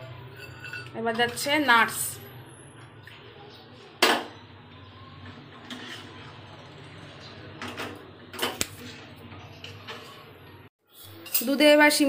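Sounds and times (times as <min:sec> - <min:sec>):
utensils clinking on a pan: 0:00.0 - 0:02.0, 0:05.2 - 0:12.0.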